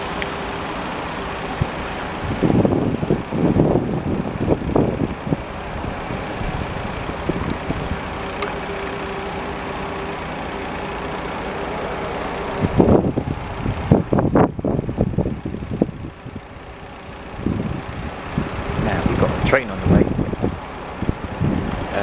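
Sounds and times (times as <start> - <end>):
vehicle engine hum: 0.0 - 22.0
wind buffeting microphone: 1.2 - 8.7, 12.2 - 22.0.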